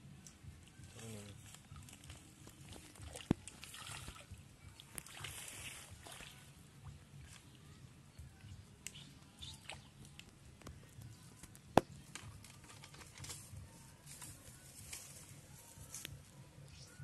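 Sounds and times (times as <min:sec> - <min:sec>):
fishing line rustling: 0:11.3 - 0:17.0.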